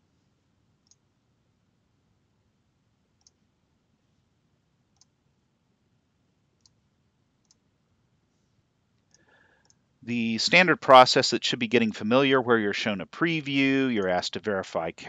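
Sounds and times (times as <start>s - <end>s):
computer mouse clicks: 0.8s - 1.0s, 3.2s - 3.4s, 6.6s - 6.8s, 7.4s - 7.6s.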